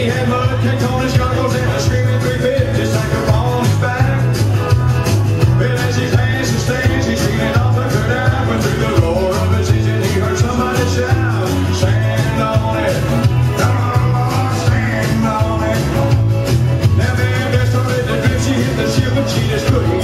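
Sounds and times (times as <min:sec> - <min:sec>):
country dance music: 0:00.0 - 0:20.0
person singing: 0:00.0 - 0:20.0.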